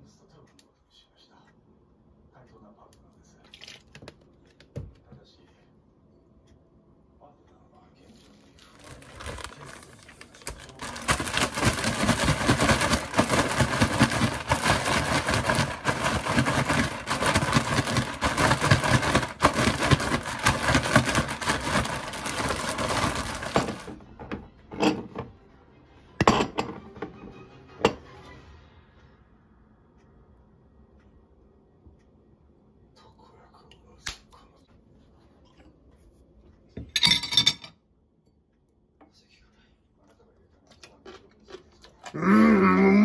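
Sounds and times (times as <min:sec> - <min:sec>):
plastic bag crinkling: 0:08.6 - 0:24.0.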